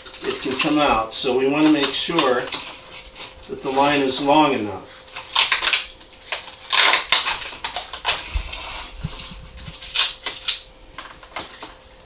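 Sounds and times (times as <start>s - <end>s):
plastic tubing rustling and scraping: 0.0s - 11.8s.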